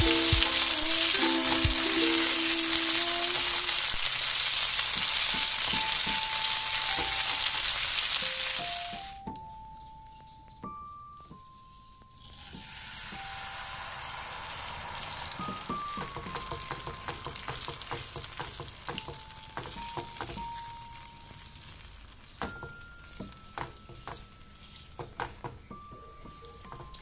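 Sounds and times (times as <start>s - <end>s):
liquid sizzling in hot oil: 0.0s - 9.2s, 12.1s - 25.5s
spatula tapping and scraping a pan: 15.4s - 20.5s.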